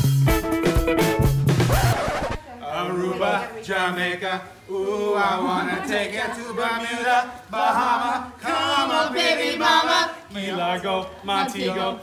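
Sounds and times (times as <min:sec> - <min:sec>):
men singing together: 0:02.6 - 0:12.0.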